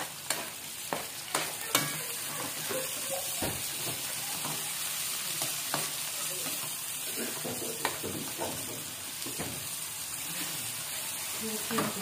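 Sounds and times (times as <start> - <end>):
tomatoes sizzling in hot oil: 0.0 - 12.0.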